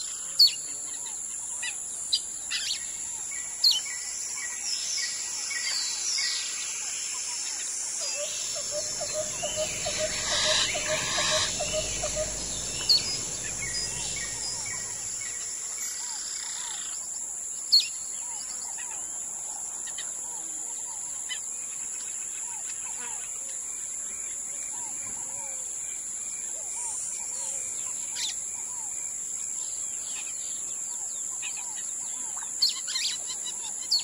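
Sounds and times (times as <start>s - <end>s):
high insect drone: 0.0s - 34.0s
birds calling and chirping: 8.0s - 17.0s
low rumble: 8.5s - 15.4s.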